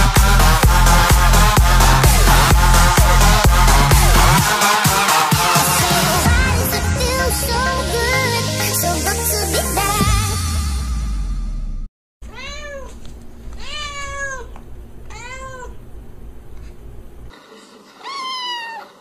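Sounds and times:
dance-pop music: 0.0s - 11.0s
cat meowing: 12.3s - 13.0s, 13.6s - 15.8s, 18.0s - 19.0s.

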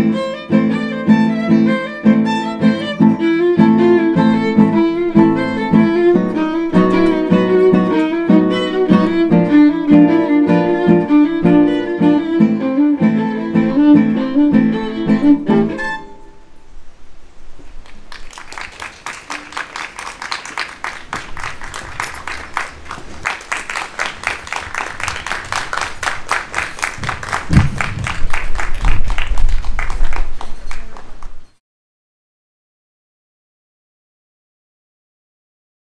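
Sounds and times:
violin and acoustic guitar playing: 0.0s - 16.5s
audience clapping: 17.8s - 31.4s.

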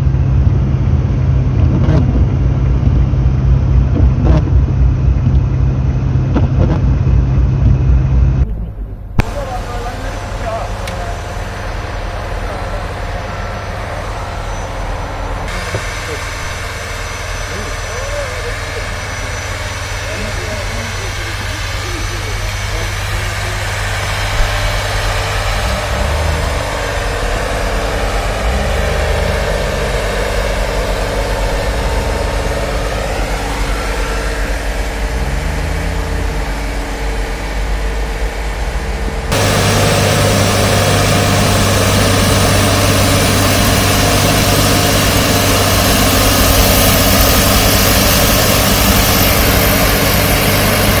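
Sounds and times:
diesel engine running: 0.0s - 51.0s
strong hiss: 9.2s - 35.2s, 39.3s - 51.0s
snow blower running: 9.2s - 51.0s.

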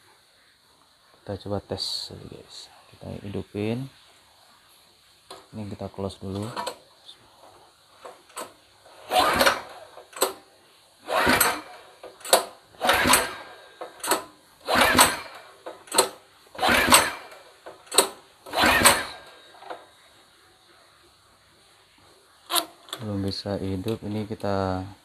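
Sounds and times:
recoil starter whirring: 8.0s - 20.0s
engine turning over: 8.3s - 10.4s, 11.0s - 19.9s
sharp click: 11.4s - 19.8s.

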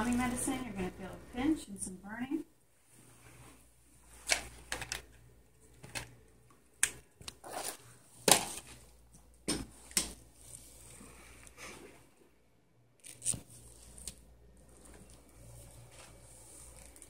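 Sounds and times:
soft rustling: 2.8s - 4.6s.

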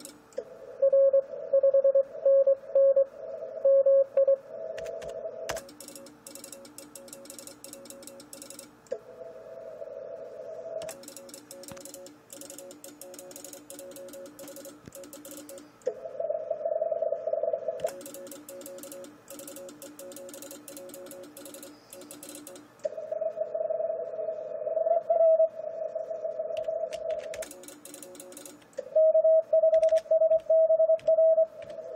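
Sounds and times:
keyed morse tones with clicking: 0.0s - 3.1s, 3.7s - 9.0s, 10.8s - 16.0s, 17.8s - 23.0s, 26.6s - 31.9s.

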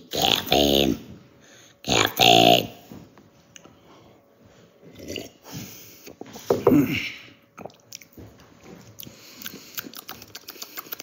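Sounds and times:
wet mouth noises: 7.6s - 8.2s, 8.8s - 11.0s.

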